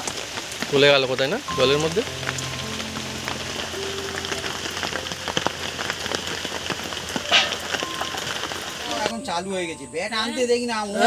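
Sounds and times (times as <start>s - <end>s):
rain falling on a pond: 0.0s - 9.7s.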